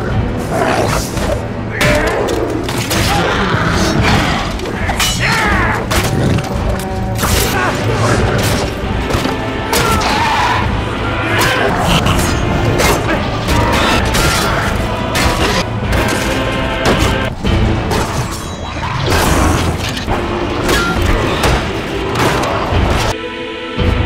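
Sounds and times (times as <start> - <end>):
orchestral music: 0.0 - 24.0.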